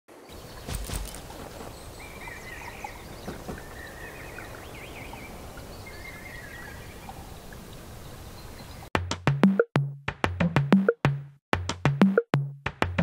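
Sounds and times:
small birds chirping: 0:00.1 - 0:08.9.

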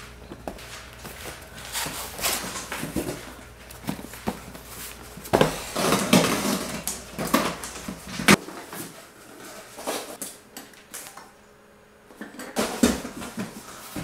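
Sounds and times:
cardboard rustling and scraping: 0:00.4 - 0:10.2.

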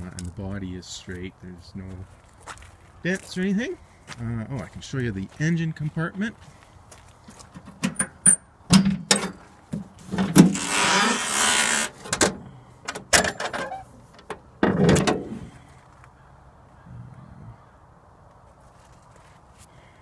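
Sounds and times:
tractor hood latch clicks and knocks: 0:07.6 - 0:10.5, 0:11.9 - 0:15.4.

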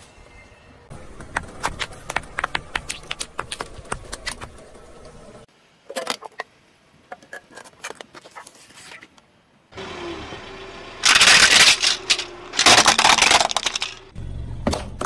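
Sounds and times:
pods popping under a tyre: 0:01.0 - 0:04.7.

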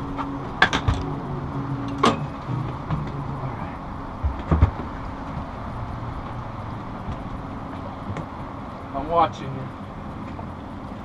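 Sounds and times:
dull knocks: 0:04.2 - 0:05.4.

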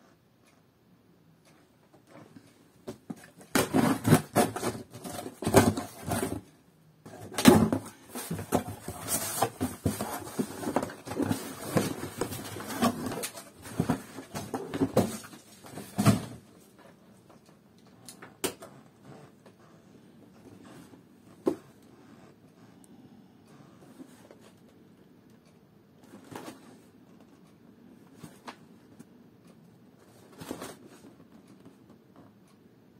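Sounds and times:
cardboard scraping and rustling: 0:02.9 - 0:06.5, 0:07.1 - 0:16.5, 0:30.1 - 0:31.2.

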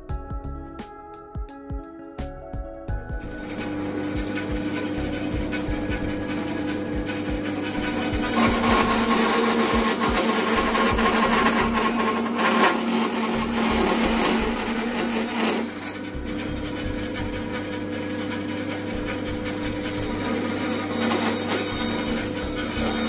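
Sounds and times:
bandsaw cutting wood: 0:03.2 - 0:23.0.

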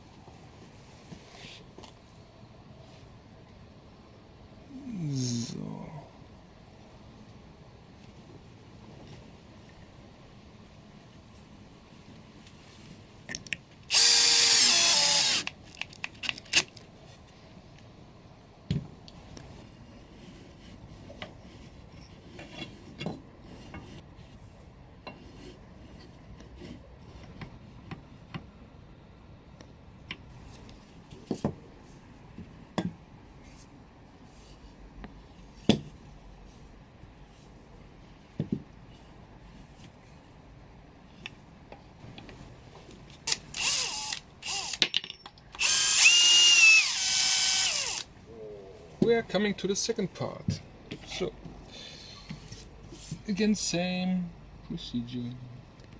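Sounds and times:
cordless drill motor: 0:13.9 - 0:15.6, 0:43.3 - 0:44.8, 0:45.6 - 0:48.1.

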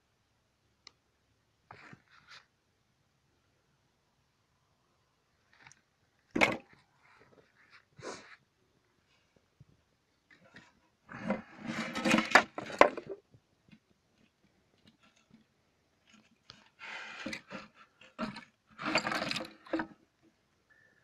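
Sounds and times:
fiberglass shells scraping and knocking: 0:11.2 - 0:13.3, 0:14.8 - 0:20.0.

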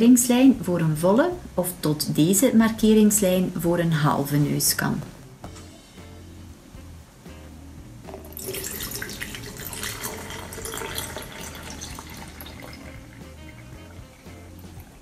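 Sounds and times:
water pouring into plastic pot: 0:08.1 - 0:15.0.

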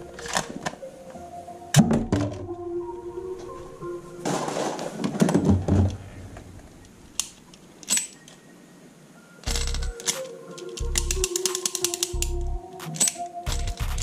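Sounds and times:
plastic toy guns rattling: 0:09.4 - 0:12.3
sharp clicks: 0:09.4 - 0:14.0.

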